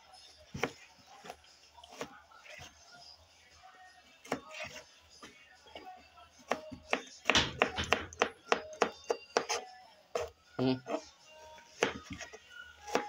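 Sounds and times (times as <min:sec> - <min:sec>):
knife chopping on wooden board: 0:00.5 - 0:00.8, 0:04.2 - 0:04.8, 0:06.5 - 0:09.6, 0:11.8 - 0:12.3.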